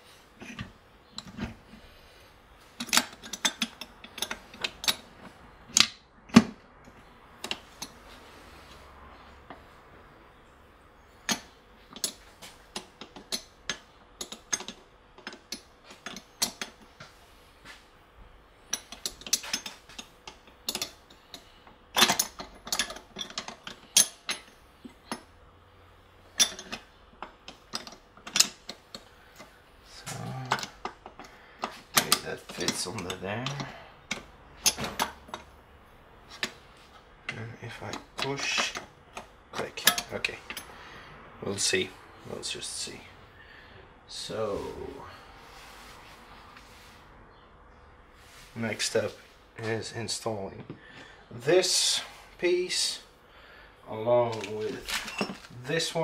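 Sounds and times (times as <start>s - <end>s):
metal parts clicking and clinking: 2.8s - 5.1s, 11.2s - 16.8s, 18.7s - 25.3s, 26.3s - 35.5s, 36.3s - 40.7s, 54.3s - 56.0s.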